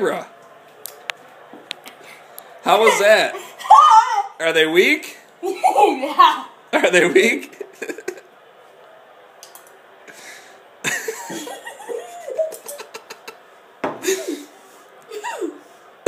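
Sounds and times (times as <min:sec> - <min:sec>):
boy making pained sounds: 0:03.6 - 0:04.4.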